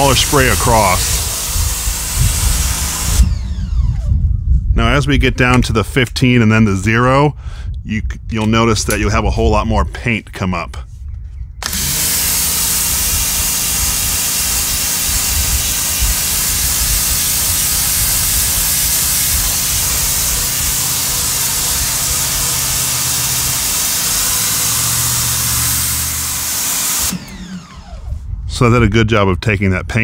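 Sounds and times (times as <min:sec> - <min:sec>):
water jet hissing on concrete: 0:00.0 - 0:03.3, 0:11.7 - 0:27.2
pressure washer motor hum: 0:00.0 - 0:04.3, 0:11.6 - 0:28.4.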